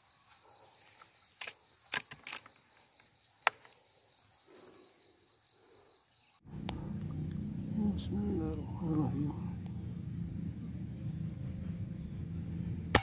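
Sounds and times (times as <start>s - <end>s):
insects droning: 0.0s - 13.0s
air rifle metallic clicks: 1.3s - 2.6s.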